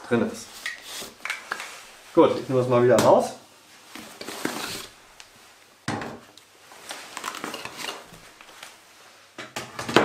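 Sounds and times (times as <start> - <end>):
fabric and foam rustling: 6.6 - 9.3.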